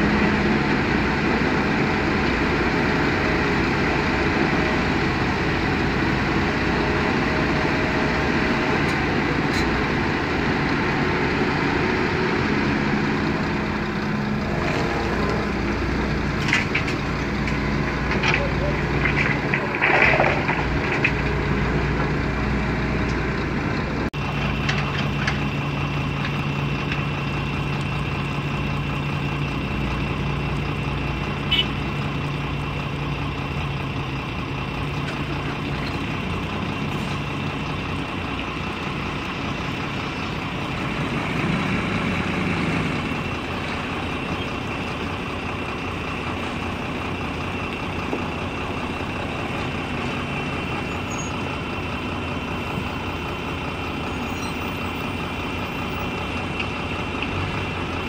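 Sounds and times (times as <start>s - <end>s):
diesel engines running: 0.0s - 58.0s.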